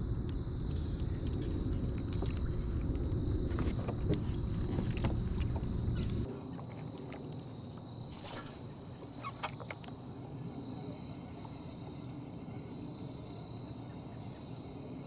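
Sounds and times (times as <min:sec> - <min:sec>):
light clicks and clinks: 0:00.0 - 0:02.6, 0:06.0 - 0:07.9.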